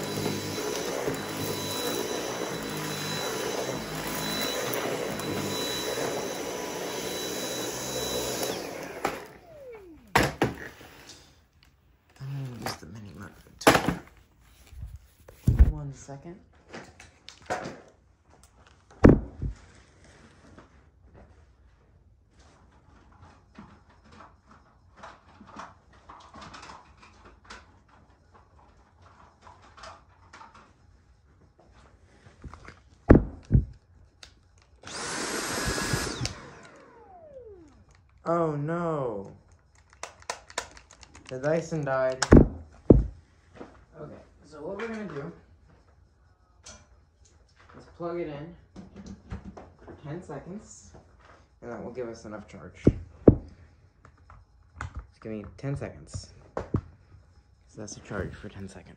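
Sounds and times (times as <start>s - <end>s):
vacuum cleaner whine: 0.0s - 11.4s, 34.8s - 39.3s
loud knocks: 19.0s - 19.6s, 33.1s - 33.7s.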